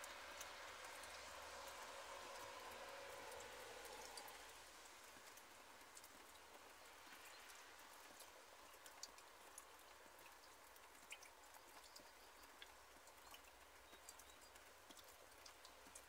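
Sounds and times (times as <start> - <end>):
light rain falling: 0.0 - 16.0
raindrop ticks: 0.0 - 16.0.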